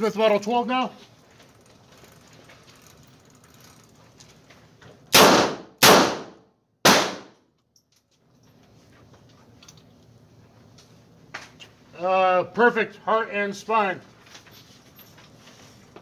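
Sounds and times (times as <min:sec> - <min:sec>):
revolver shots echoing indoors: 0:05.1 - 0:07.4.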